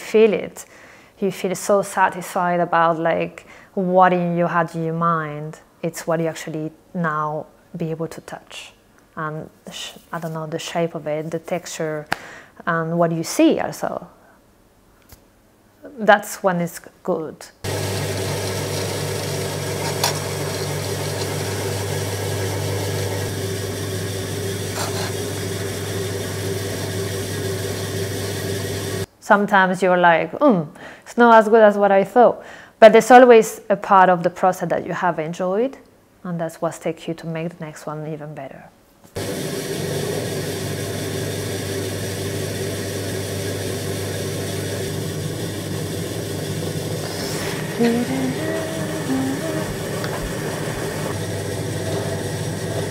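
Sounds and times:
potter's wheel motor hum: 17.6 - 29.1, 39.2 - 52.9.

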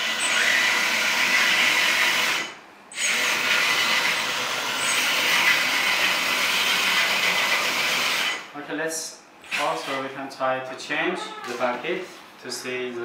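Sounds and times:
hydraulic pump whine: 0.0 - 8.4.

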